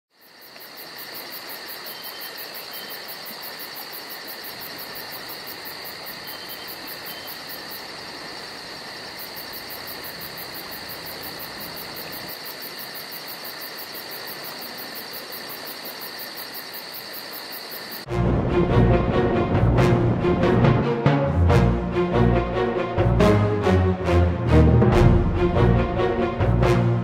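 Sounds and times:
insect chorus drone: 0.1s - 18.9s.

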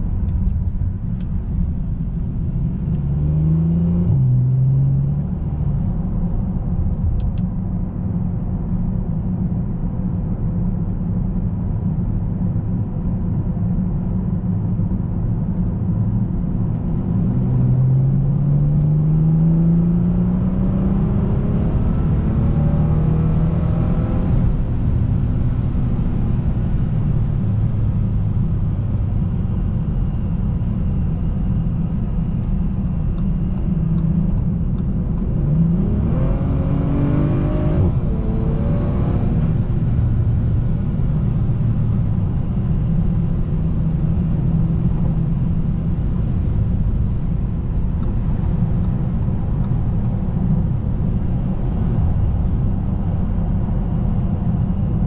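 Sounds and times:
car engine accelerating: 0.0s - 8.2s, 16.1s - 55.0s
road noise inside car: 0.0s - 55.0s.

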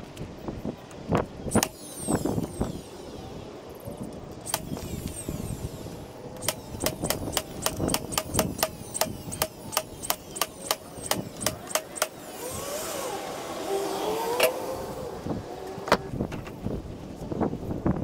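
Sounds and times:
nail gun firing into wood: 1.5s - 1.8s, 4.4s - 5.1s, 6.4s - 12.2s.

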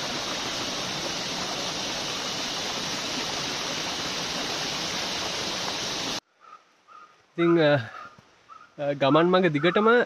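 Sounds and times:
fast-flowing stream water: 0.0s - 6.2s.

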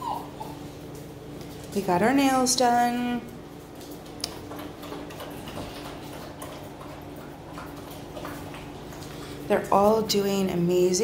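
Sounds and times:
puppy claws clicking on tile: 3.7s - 9.3s.

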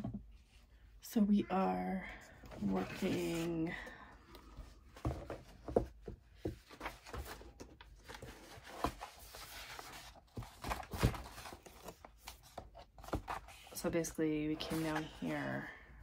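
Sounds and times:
fabric and paper rustling: 2.5s - 3.8s.

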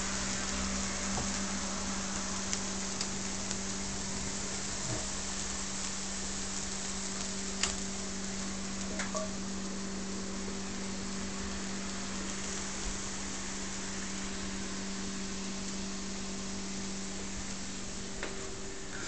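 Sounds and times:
cakes sizzling in clay pot: 0.0s - 19.0s
steady low hum: 0.0s - 19.0s.

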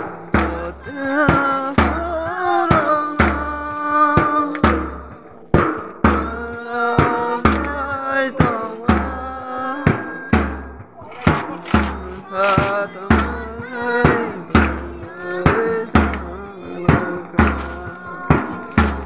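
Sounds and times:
drum beat with deep bass: 0.0s - 19.0s
person singing: 0.0s - 19.0s.

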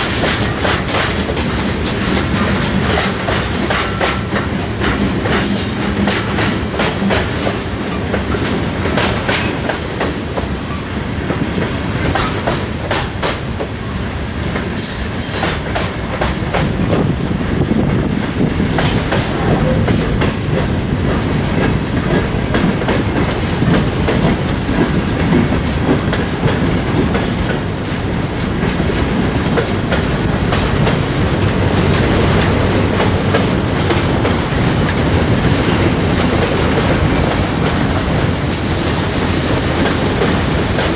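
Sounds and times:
wheels clacking over rail joints: 0.0s - 13.8s, 15.4s - 40.9s
train wheels rumbling on rail: 0.0s - 40.9s
high wheel squeal: 14.8s - 15.6s.

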